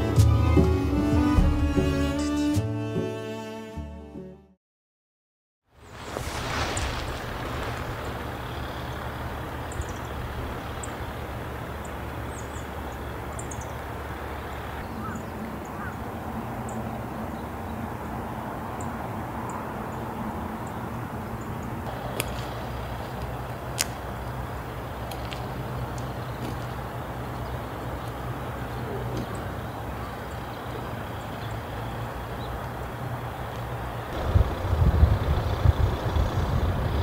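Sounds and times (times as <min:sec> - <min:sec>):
road and wind noise: 0:05.7 - 0:37.0
motor vehicle running: 0:06.1 - 0:37.0
faint bird chirps: 0:08.1 - 0:17.8.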